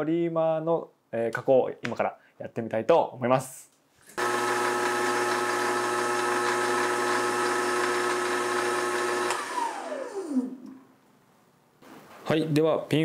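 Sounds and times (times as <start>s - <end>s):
lathe motor whine: 4.2s - 10.7s.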